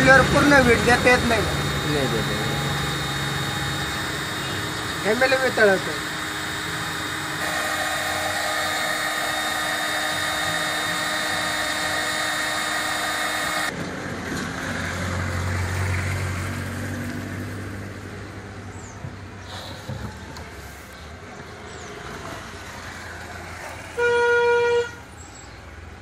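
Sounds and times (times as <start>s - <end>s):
hot air gun fan whirring: 0.0s - 13.8s.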